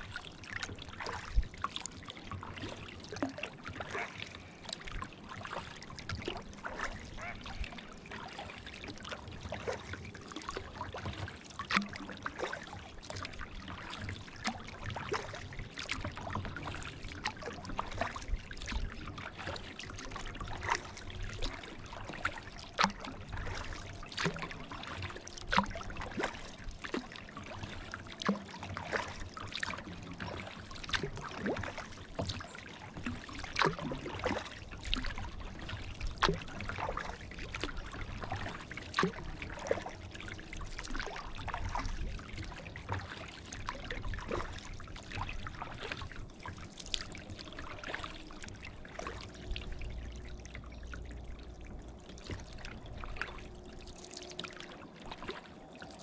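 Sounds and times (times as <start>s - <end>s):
kayak paddle splashing: 0.0s - 56.0s
water trickling off paddle: 0.0s - 56.0s.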